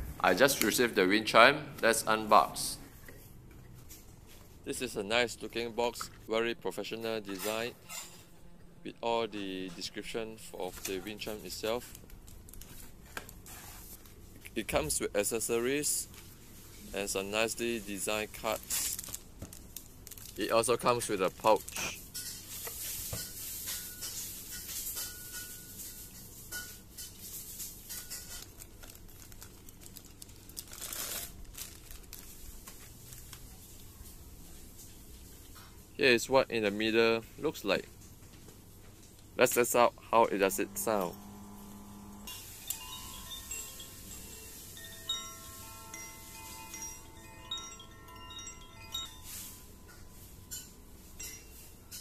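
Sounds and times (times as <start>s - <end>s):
plastic wrapping crinkling: 10.7s - 14.5s, 16.1s - 23.7s, 27.2s - 34.8s
bamboo wind chime ringing: 42.3s - 52.0s.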